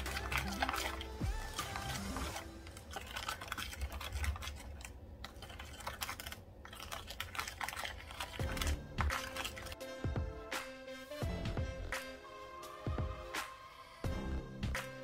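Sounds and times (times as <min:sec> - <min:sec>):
brush stirring paste in bowl: 0:00.0 - 0:09.8.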